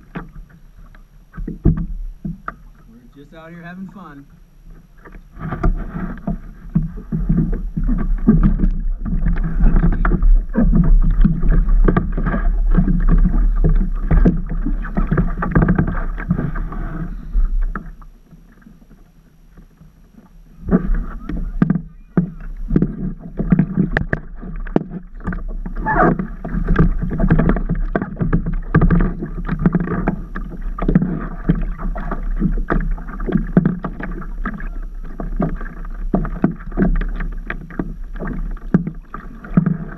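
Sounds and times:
water splashing against paddleboard: 0.0s - 39.9s
steady low rumble: 2.8s - 18.2s.

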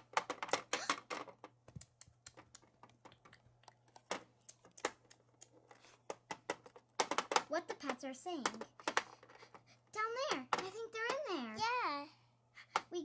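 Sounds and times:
plastic toys clicking on table: 0.0s - 11.3s.

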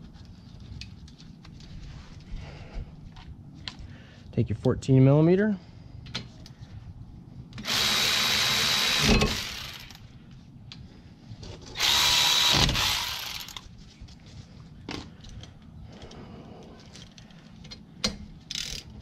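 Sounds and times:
power driver whirring: 7.6s - 10.0s, 11.8s - 13.6s.

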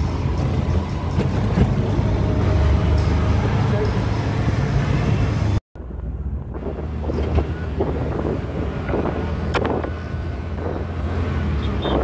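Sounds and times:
auto-rickshaw engine and road rumble: 0.0s - 12.0s
wind buffeting microphone: 5.8s - 11.2s.

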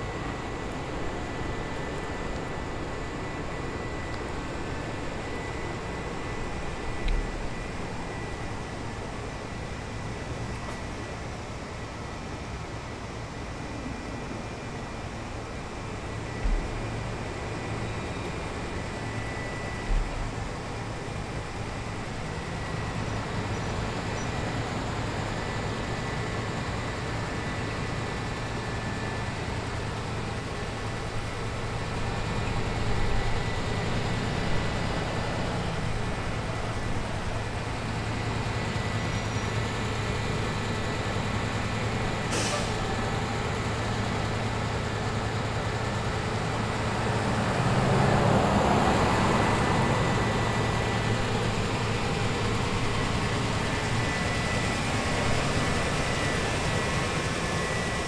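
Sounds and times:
heavy vehicle engine hum: 0.0s - 58.0s
short sharp hiss: 42.3s - 42.8s.

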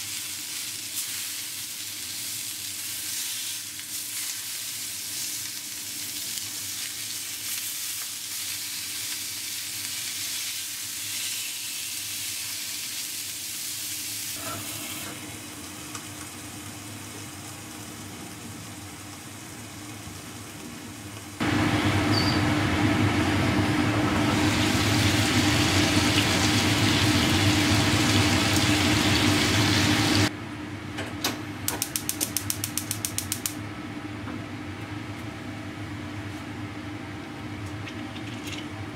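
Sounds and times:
meat sizzling in frying pan: 0.0s - 21.4s, 24.3s - 30.3s.

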